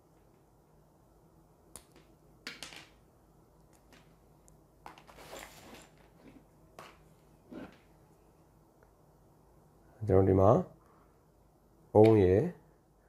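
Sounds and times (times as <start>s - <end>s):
leads rustling and scraping on table: 4.9s - 7.9s.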